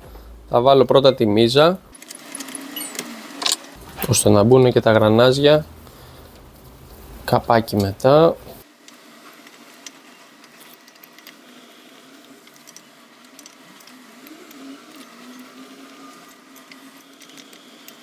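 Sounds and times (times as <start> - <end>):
screwdriver clicks and scrapes: 9.4 - 11.4, 12.2 - 18.0.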